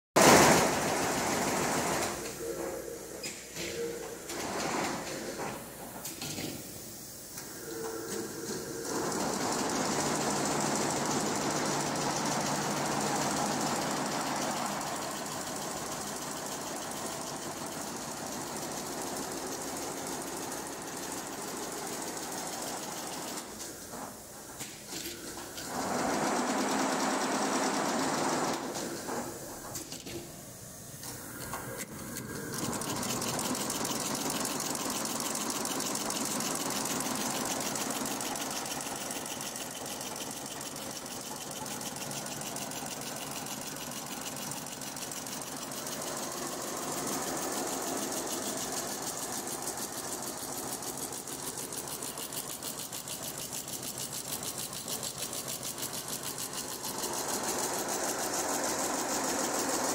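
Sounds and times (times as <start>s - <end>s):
embroidery machine needle clatter: 8.9s - 23.5s, 32.2s - 59.9s.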